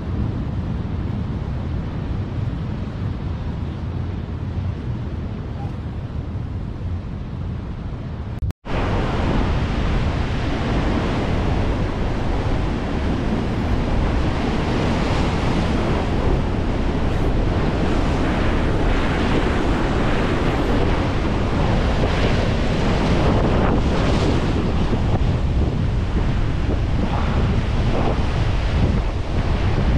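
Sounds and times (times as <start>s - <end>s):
wind buffeting microphone: 0.0s - 29.9s
heavy surf breaking over rocks: 8.6s - 29.9s.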